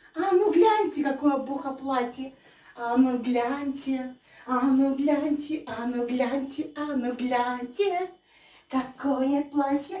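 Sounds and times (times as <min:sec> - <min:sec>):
woman singing wordless syllables: 0:00.0 - 0:10.0.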